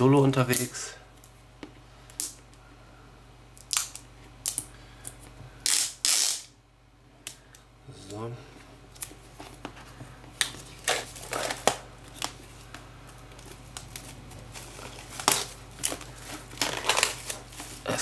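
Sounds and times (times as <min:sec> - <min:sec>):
plastic shrink wrap crinkling: 0:10.4 - 0:18.0.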